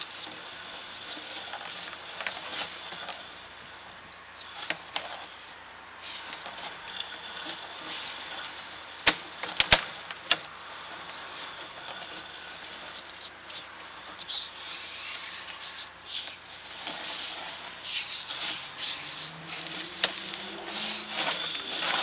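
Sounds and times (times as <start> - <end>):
sharp clicks and knocks: 9.0 - 10.5
push cable hissing: 17.0 - 22.0.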